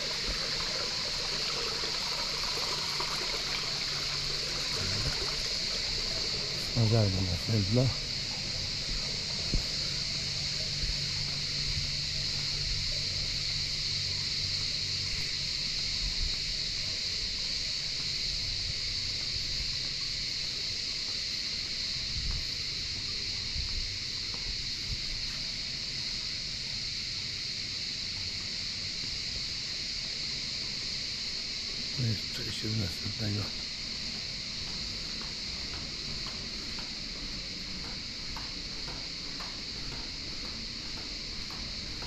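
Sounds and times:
cicadas buzzing: 0.0s - 42.0s
wind rumble on microphone: 8.8s - 9.8s, 22.0s - 22.7s, 23.4s - 25.3s.

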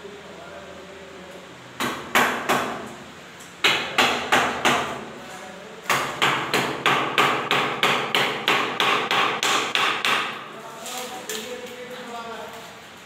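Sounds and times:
hammer striking wood: 1.8s - 2.9s, 3.6s - 5.0s, 5.9s - 10.4s.

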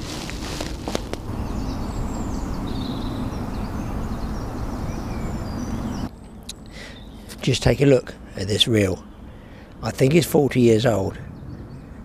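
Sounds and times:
low background rumble: 0.0s - 12.0s
small birds chirping: 0.0s - 12.0s.

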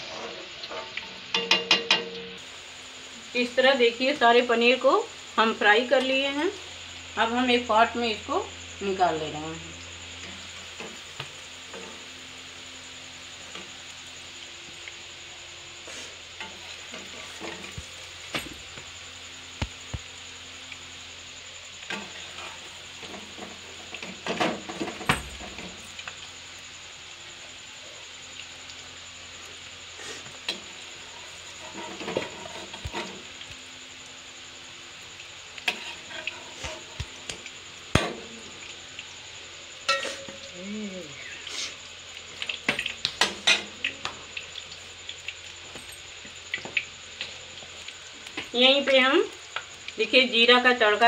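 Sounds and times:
cubes sizzling in hot oil: 0.0s - 51.0s
metal skimmer scraping pan: 31.5s - 33.2s, 39.9s - 40.5s.

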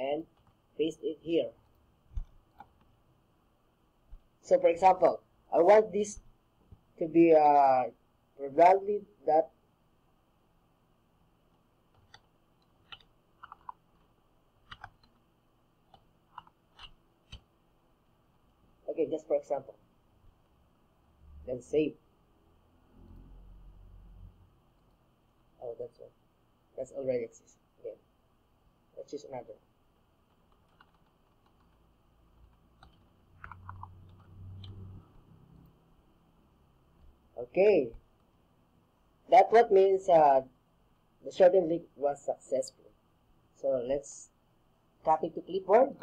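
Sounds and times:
computer keyboard keystrokes: 11.9s - 13.8s, 14.6s - 15.2s, 15.9s - 17.4s, 30.3s - 31.8s, 32.4s - 34.8s
low hum: 19.9s - 26.2s.

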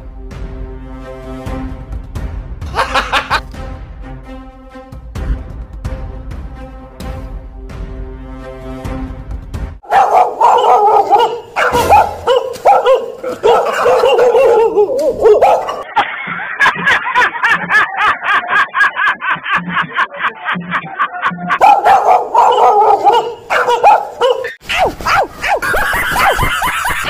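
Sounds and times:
fake dog barking: 9.8s - 15.8s, 21.6s - 26.4s.

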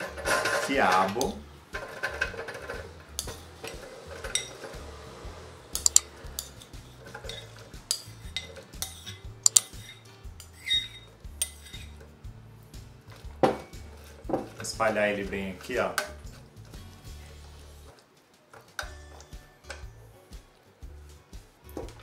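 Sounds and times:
spoon clinking on ceramic bowl: 7.3s - 12.0s.

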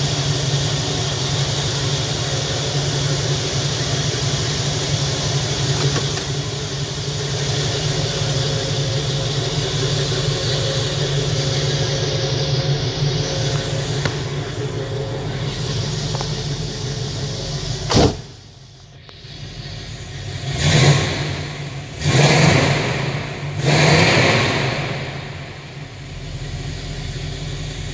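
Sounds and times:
car engine running: 0.0s - 27.9s
sharp knock: 17.9s - 18.3s
engine revving: 19.1s - 25.7s.

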